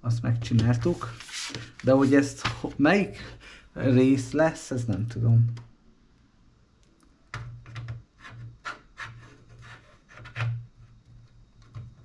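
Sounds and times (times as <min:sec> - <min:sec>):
scraping rubs: 0:00.7 - 0:02.3, 0:08.2 - 0:10.6.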